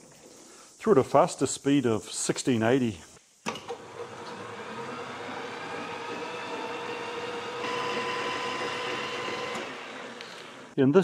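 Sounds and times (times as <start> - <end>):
lathe running with gear whine: 3.8 - 10.8.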